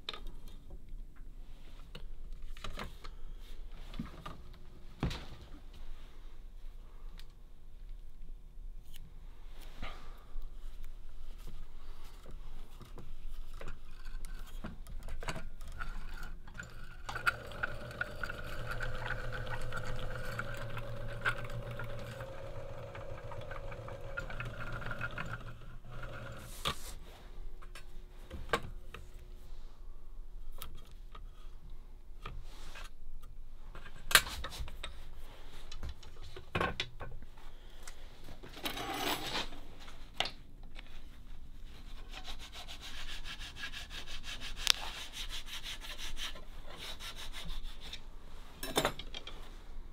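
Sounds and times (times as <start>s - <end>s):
electric motor humming: 17.1s - 26.5s.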